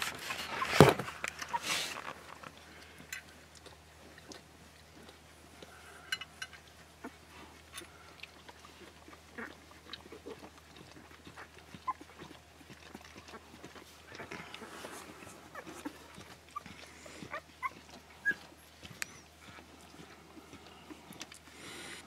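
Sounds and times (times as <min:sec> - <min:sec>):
puppies nursing clicks and smacks: 0:00.0 - 0:22.0
puppy squeaks: 0:16.6 - 0:19.2.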